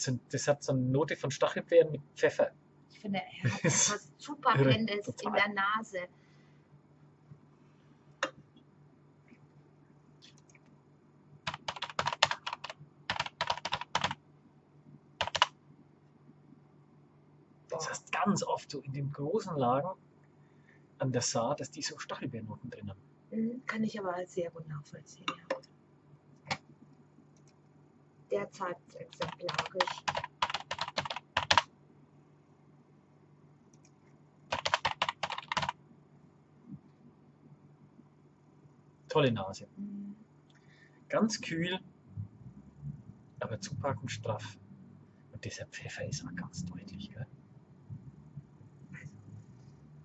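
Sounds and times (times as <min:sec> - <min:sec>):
typing on a computer keyboard: 0:11.5 - 0:14.2, 0:15.2 - 0:15.5, 0:29.1 - 0:31.7, 0:34.5 - 0:35.8.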